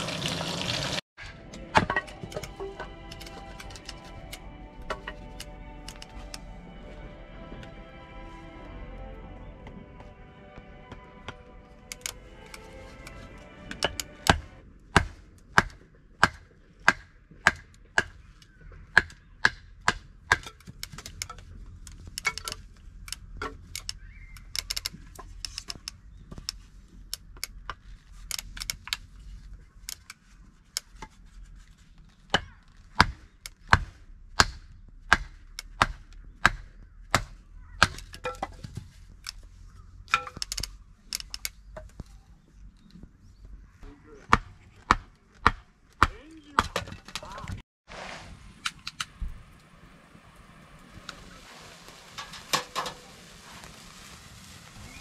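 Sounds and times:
sharp chopping strikes: 0:13.8 - 0:18.3, 0:32.3 - 0:38.2, 0:44.3 - 0:46.8.

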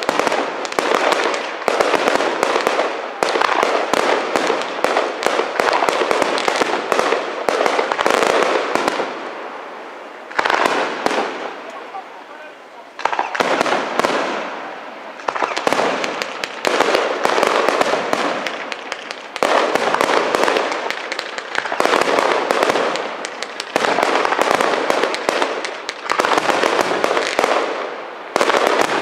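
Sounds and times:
firework crackling: 0:00.0 - 0:29.0
firework shells bursting: 0:13.0 - 0:14.6, 0:15.2 - 0:29.0.

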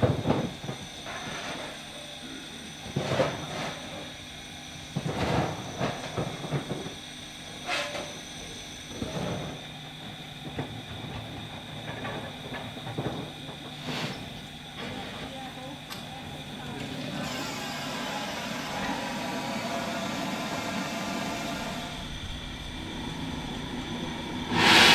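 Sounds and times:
steam locomotive hissing: 0:16.4 - 0:24.9
steam blasts: 0:17.1 - 0:24.9
steam gushing from drain cocks: 0:17.1 - 0:24.9.

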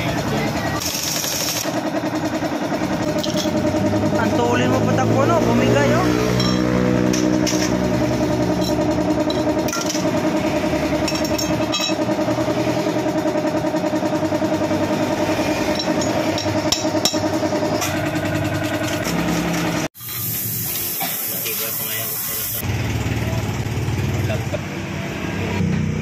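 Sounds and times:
motor running with fast pulse: 0:00.0 - 0:19.9.

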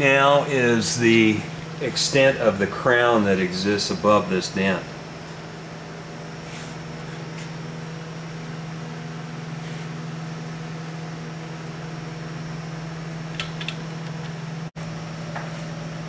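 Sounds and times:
workshop low hum with hiss: 0:00.0 - 0:16.0.

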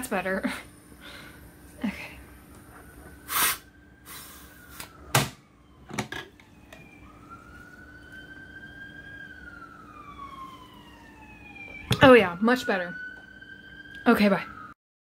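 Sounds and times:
siren wailing: 0:01.8 - 0:14.8
gas hissing from bottle: 0:03.2 - 0:04.9.

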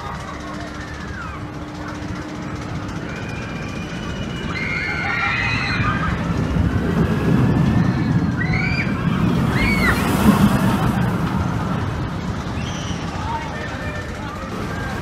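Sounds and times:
coaster cars rumbling on track: 0:00.0 - 0:15.0
high wavering squeals: 0:00.2 - 0:10.3.

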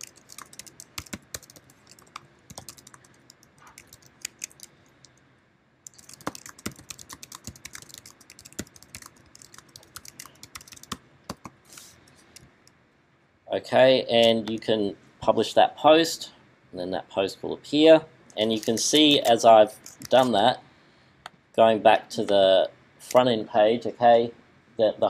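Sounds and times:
typing on a keyboard: 0:00.0 - 0:04.7, 0:05.9 - 0:11.6.

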